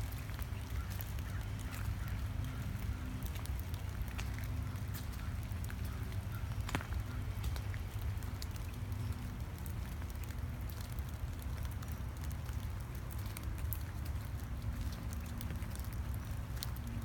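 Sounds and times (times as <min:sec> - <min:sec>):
footsteps crunching on wet gravel: 0:00.0 - 0:08.5.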